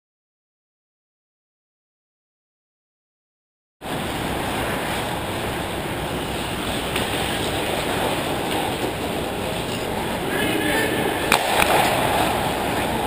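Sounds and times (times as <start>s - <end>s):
skates scraping ice: 4.3s - 13.0s.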